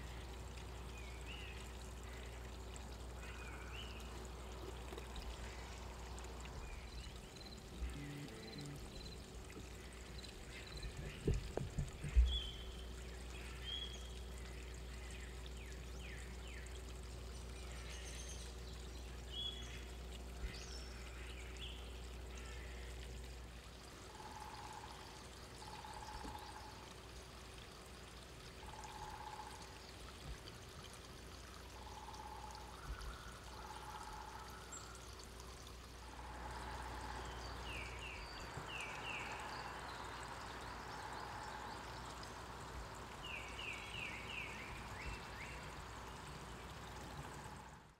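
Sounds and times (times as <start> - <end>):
songbirds calling: 0.0 - 47.9.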